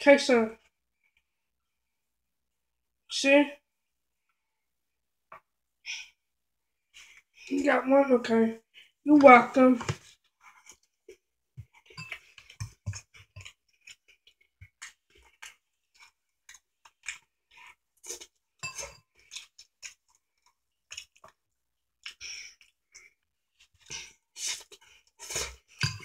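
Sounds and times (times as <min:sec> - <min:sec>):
person chewing noodles: 0:10.3 - 0:26.0.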